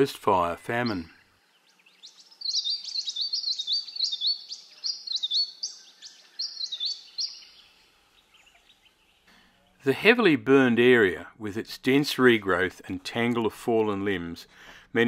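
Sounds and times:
faint background hiss: 0.0s - 15.0s
bird chirping rapidly: 0.6s - 9.3s.

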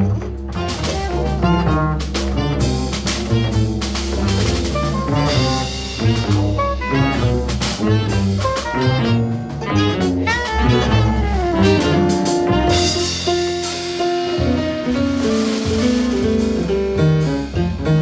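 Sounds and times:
low didgeridoo drone: 0.0s - 13.2s
jazz ensemble playing: 0.0s - 18.0s.

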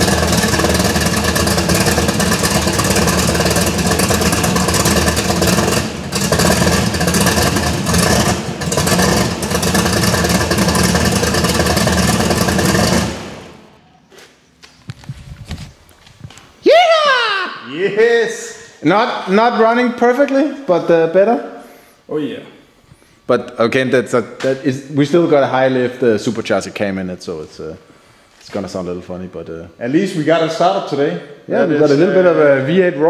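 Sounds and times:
car engine running unevenly: 0.0s - 13.7s.

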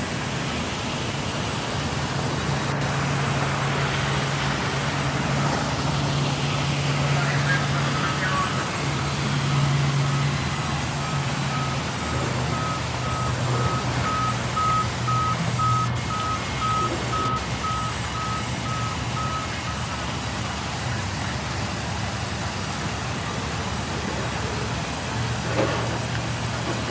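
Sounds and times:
band saws humming: 1.4s - 21.1s
high electronic beep: 10.0s - 19.9s.

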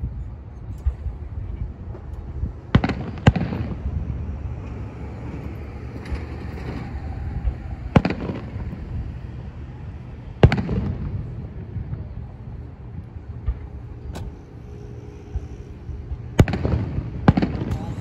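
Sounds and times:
steady low rumble: 0.0s - 18.0s
distant firework shells bursting: 2.7s - 3.8s, 7.9s - 8.9s, 16.3s - 18.0s.

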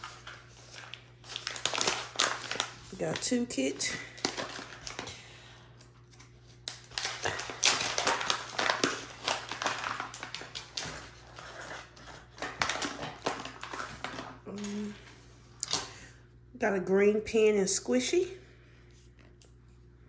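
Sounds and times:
packaging pouch crinkling: 0.0s - 5.2s, 5.8s - 14.4s.

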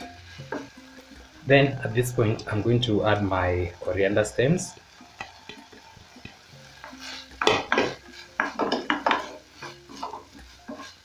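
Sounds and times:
spatula scraping and knocking frying pan: 5.2s - 11.0s.

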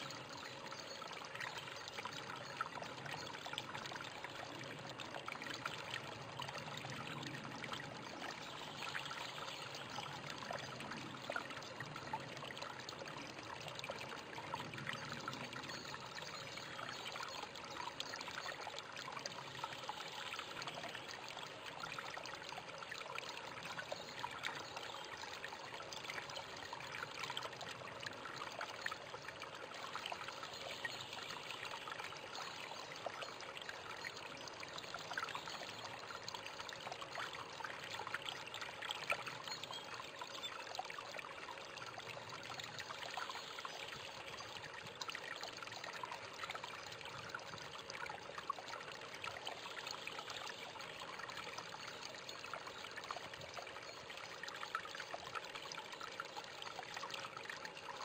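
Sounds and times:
water trickling into pool: 0.0s - 58.0s.

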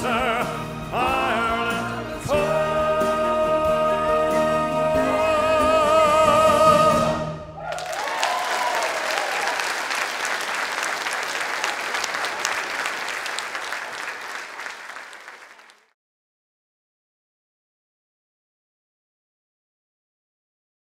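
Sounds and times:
man singing with vibrato: 0.0s - 7.5s
musical accompaniment: 0.0s - 7.6s
audience applause: 7.6s - 15.9s.

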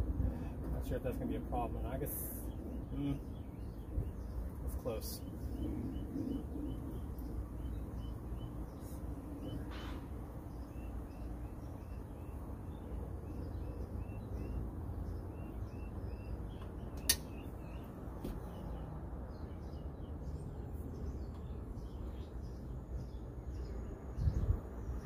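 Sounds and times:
small birds chirping: 0.0s - 25.0s
sharp click: 16.9s - 17.4s.

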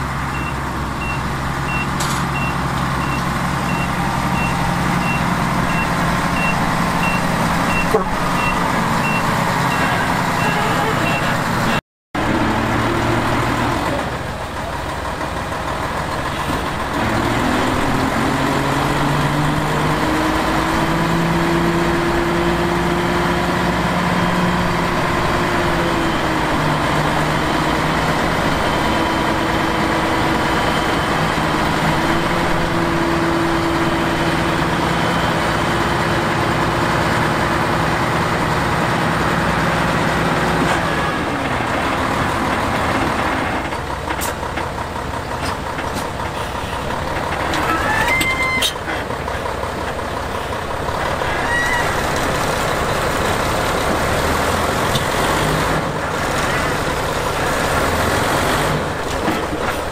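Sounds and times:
heavy diesel engine running: 0.0s - 59.9s.

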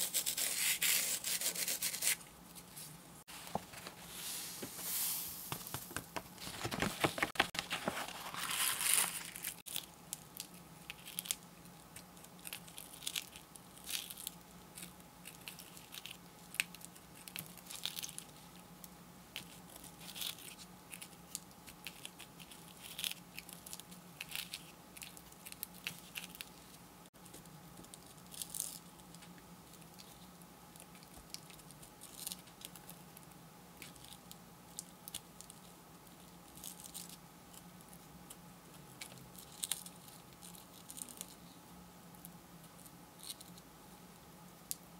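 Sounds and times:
stylus scratching sticky sheet: 0.0s - 2.2s
sand shaken off card: 4.0s - 6.0s.

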